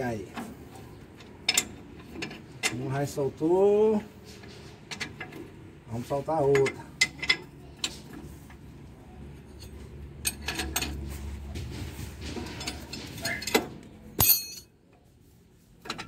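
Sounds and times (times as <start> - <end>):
sharp metallic clank: 14.2 - 14.7
wrench clinking on metal nut: 14.2 - 14.7.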